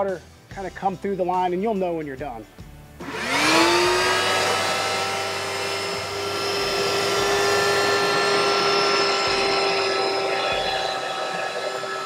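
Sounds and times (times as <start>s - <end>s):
shop vacuum motor whining: 3.0s - 12.0s.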